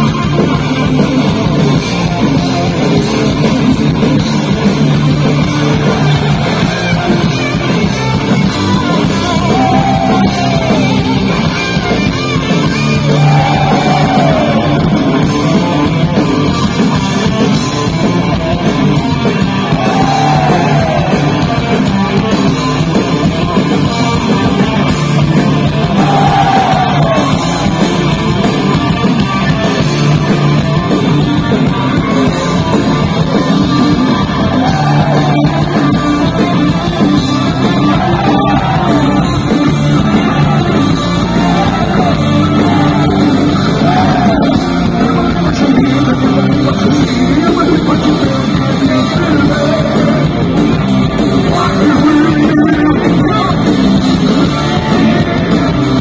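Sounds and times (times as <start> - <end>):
distorted electric guitars: 0.0 - 56.0
drums: 0.0 - 56.0
person singing: 51.4 - 53.7.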